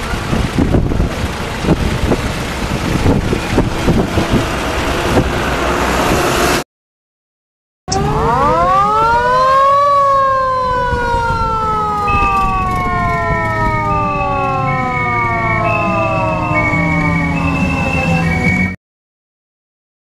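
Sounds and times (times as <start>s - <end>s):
vehicle running: 0.0s - 6.6s, 7.9s - 18.8s
hi-lo siren: 2.8s - 6.6s, 7.9s - 18.8s
siren wailing: 7.9s - 18.8s.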